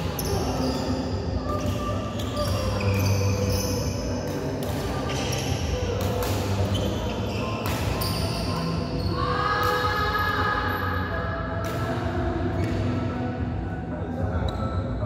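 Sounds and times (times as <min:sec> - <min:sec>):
shoes squeaking on court: 0:00.0 - 0:09.2, 0:14.4 - 0:14.8
racket striking shuttlecock: 0:06.0 - 0:06.7, 0:07.6 - 0:08.0.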